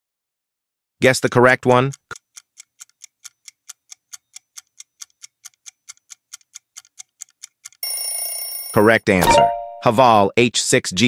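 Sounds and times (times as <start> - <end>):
countdown timer ticking: 1.4 - 7.9.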